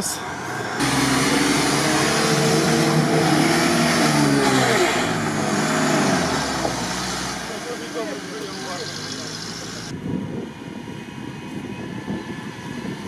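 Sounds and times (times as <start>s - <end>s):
churned water rushing: 0.8s - 8.3s
engine revving hard: 0.8s - 9.9s.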